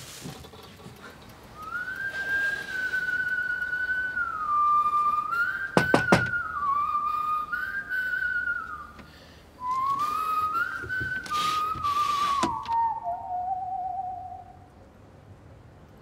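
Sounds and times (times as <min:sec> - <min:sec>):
person whistling a melody: 0:01.6 - 0:09.0, 0:09.6 - 0:14.6
sharp knocks: 0:05.8 - 0:06.4.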